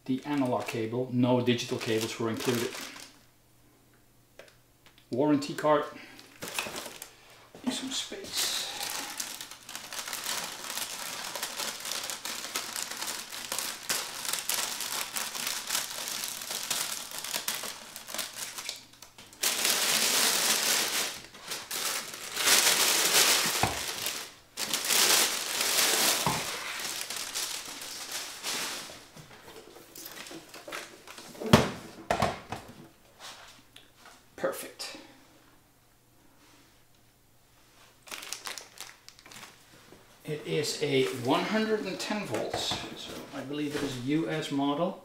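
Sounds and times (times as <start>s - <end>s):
plastic bag crinkling: 0.1s - 3.2s, 6.2s - 7.2s, 8.2s - 31.4s, 38.0s - 39.7s.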